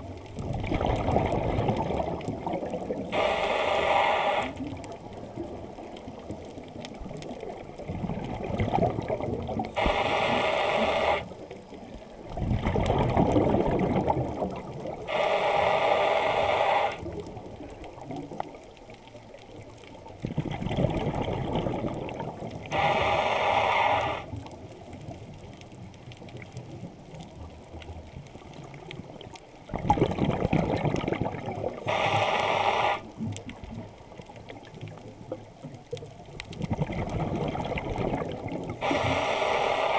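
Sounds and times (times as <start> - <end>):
exhaled air bubbling underwater: 0.0 - 39.9
regulator hissing inhale: 3.1 - 4.6, 9.8 - 11.3, 15.1 - 17.0, 22.7 - 24.3, 31.8 - 33.1, 38.8 - 39.9.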